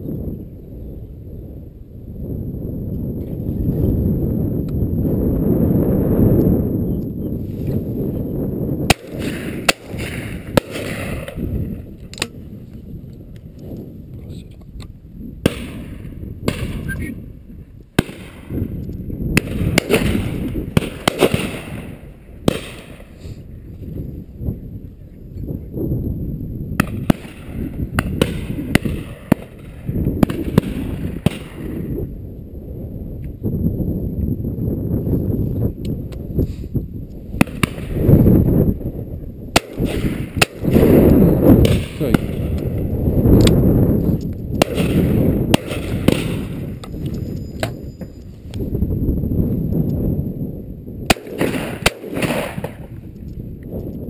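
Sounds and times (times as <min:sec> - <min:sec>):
wind rumble on microphone: 0:00.0 - 0:54.0
echoing shotgun shots: 0:08.8 - 0:12.5, 0:15.4 - 0:17.1, 0:17.9 - 0:23.2, 0:26.8 - 0:31.9, 0:37.4 - 0:38.3, 0:39.5 - 0:42.9, 0:44.6 - 0:46.9, 0:51.0 - 0:53.1
shotgun reports: 0:41.6 - 0:42.6.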